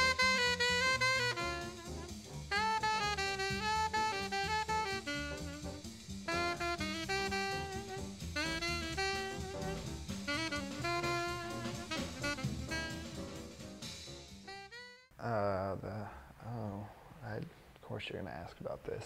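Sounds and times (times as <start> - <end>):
drums: 0.0 - 14.8
jazz saxophone melody: 0.0 - 15.1.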